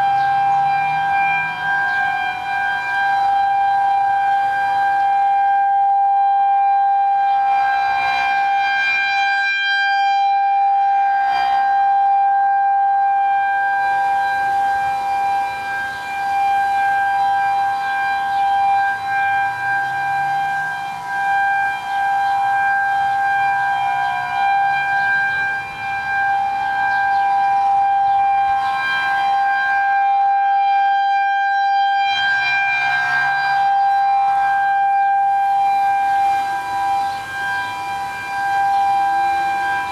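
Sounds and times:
distant sirens steady tones: 0:00.0 - 0:39.9
warning siren steady tone: 0:00.0 - 0:39.9.

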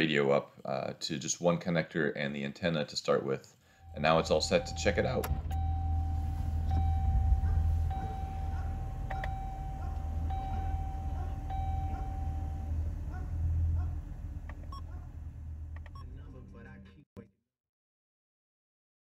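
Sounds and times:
electronic chime dinging: 0:03.8 - 0:12.8
steady low hum: 0:03.8 - 0:16.7
car radio button clicks: 0:07.9 - 0:10.8.

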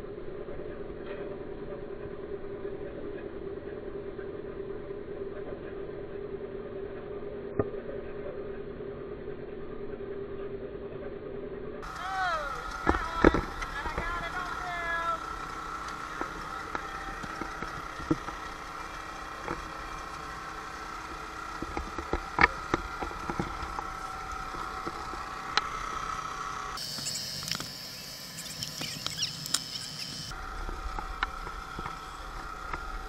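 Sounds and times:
boat motor running: 0:11.8 - 0:33.0.

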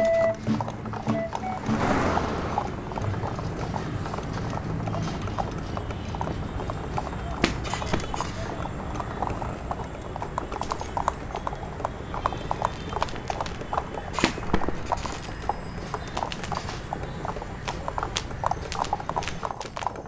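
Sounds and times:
horse hooves clip-clopping: 0:00.0 - 0:20.0
background rumble: 0:00.6 - 0:06.0.

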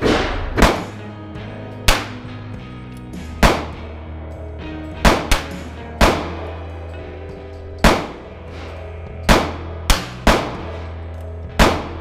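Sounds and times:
revolver gunshots with echo: 0:00.0 - 0:01.1, 0:01.8 - 0:02.3, 0:03.4 - 0:03.9, 0:05.0 - 0:06.6, 0:07.8 - 0:11.0, 0:11.6 - 0:12.0
background music: 0:00.0 - 0:12.0.

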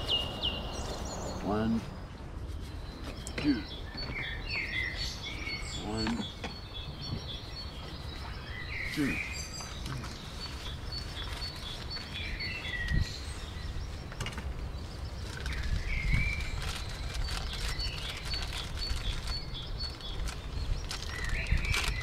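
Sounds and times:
birds chirping: 0:00.0 - 0:22.0
wind rumble on microphone: 0:09.5 - 0:22.0.

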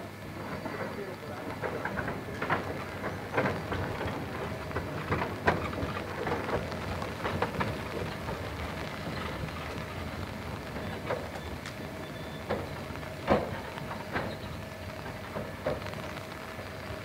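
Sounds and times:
steam locomotive rolling past: 0:00.0 - 0:17.0.

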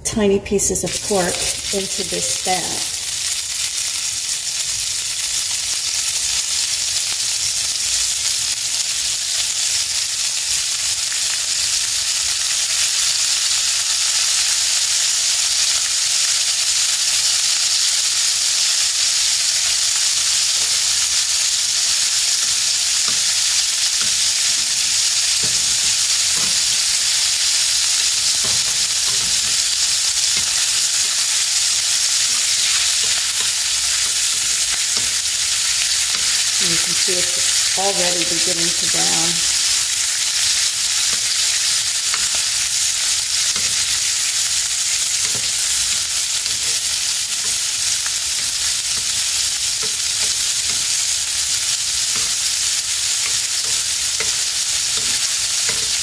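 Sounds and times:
meat sizzling in fat: 0:00.6 - 0:56.0.

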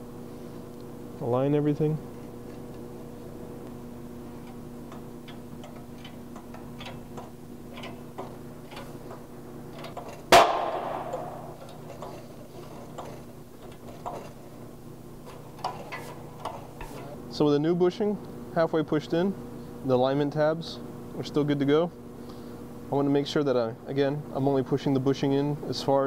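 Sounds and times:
loud ringing bang: 0:10.3 - 0:11.6.

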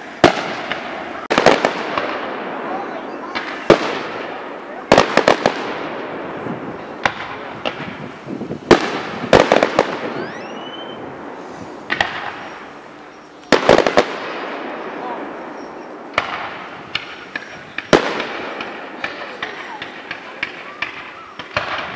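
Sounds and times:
fireworks bangs and crackles: 0:00.0 - 0:21.9
rising firework whistle: 0:09.0 - 0:14.0.

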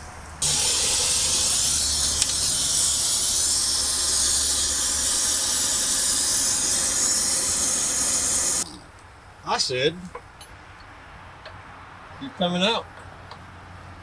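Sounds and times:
torch flame hissing: 0:00.4 - 0:08.7.

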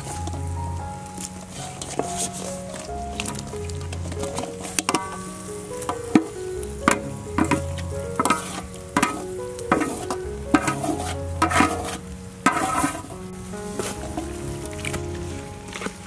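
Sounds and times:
background music: 0:00.0 - 0:16.0
oil sizzling: 0:00.0 - 0:16.0
spatula scraping metal bowl: 0:08.2 - 0:13.1.

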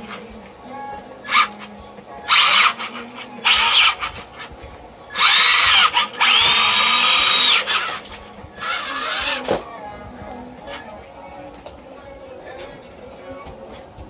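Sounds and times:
drivetrain grinding: 0:00.0 - 0:09.7
electric motor whining: 0:01.3 - 0:09.6.

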